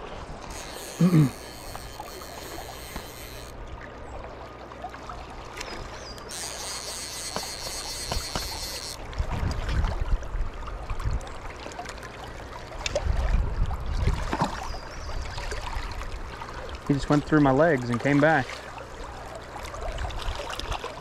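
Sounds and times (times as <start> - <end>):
river current rushing: 0.4 - 3.6, 6.3 - 9.2.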